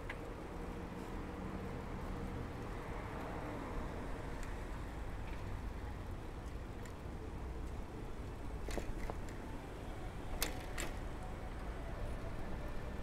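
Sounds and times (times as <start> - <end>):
wind and road noise from bicycle: 0.0 - 13.0
bicycle clicks and rattles: 8.6 - 9.5, 10.3 - 11.0.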